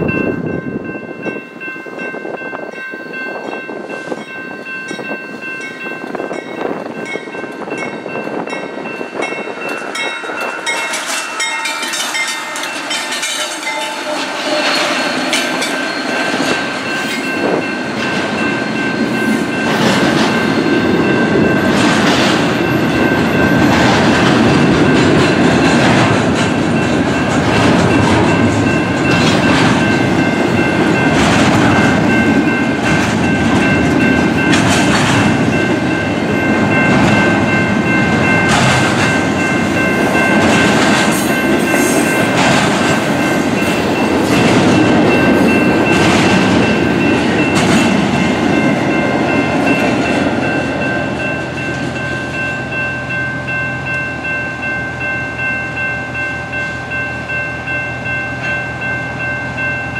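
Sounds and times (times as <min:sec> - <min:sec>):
high ringing tones: 0:00.0 - 0:21.7
train wheels rumbling on rails: 0:00.0 - 0:59.9
wheels clicking over rail joints: 0:21.4 - 0:50.8.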